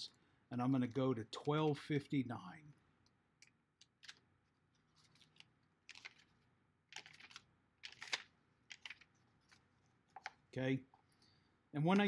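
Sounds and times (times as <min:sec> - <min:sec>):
pages flipping: 0:03.8 - 0:04.2, 0:04.8 - 0:10.4.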